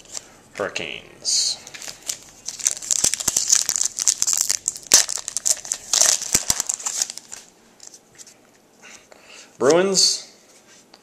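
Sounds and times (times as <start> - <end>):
foil wrapper tearing and crinkling: 1.7 - 7.5.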